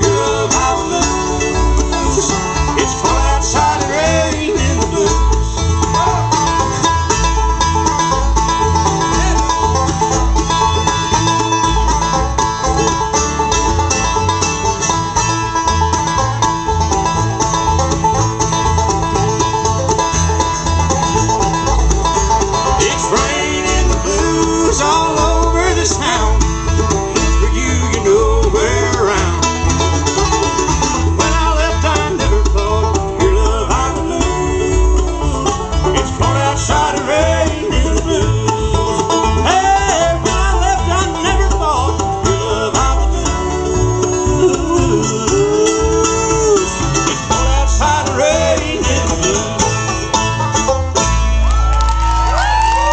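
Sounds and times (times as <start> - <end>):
voices singing: 0.0 - 6.8, 22.7 - 29.8, 31.2 - 50.2
bluegrass band playing: 0.0 - 52.9.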